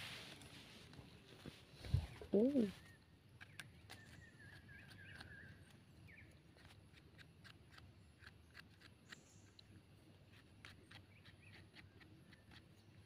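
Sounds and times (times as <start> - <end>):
knife scraping mushroom stem: 3.4 - 13.0.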